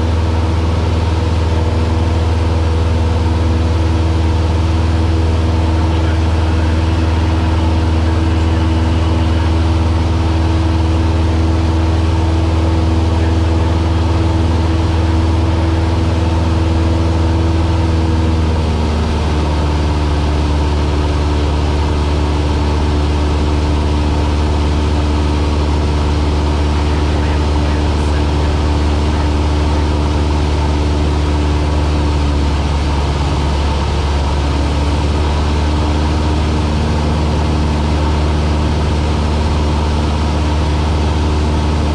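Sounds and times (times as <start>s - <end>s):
propeller plane engine droning: 0.0s - 41.9s.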